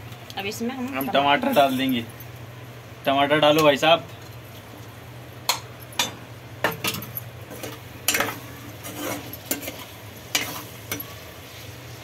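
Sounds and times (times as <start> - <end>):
metal spoon scraping pan: 6.9 - 11.2.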